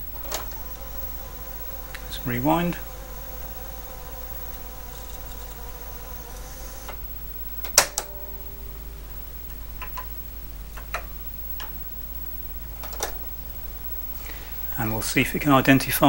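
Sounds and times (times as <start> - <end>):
cassette deck rewinding whine: 0.0 - 16.0
cassette deck clunk: 7.6 - 8.5.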